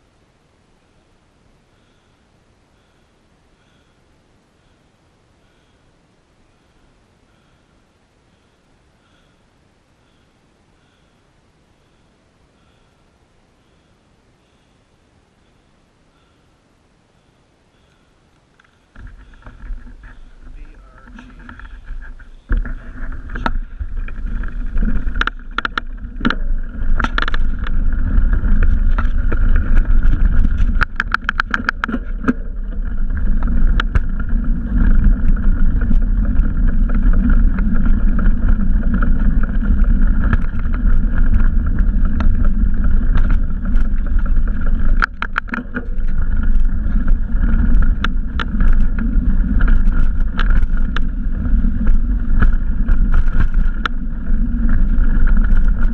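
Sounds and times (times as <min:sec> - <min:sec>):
bicycle tyre rumble: 0:17.2 - 0:55.9
bike clicks and rattles: 0:18.4 - 0:55.9
wind on microphone: 0:18.9 - 0:55.9.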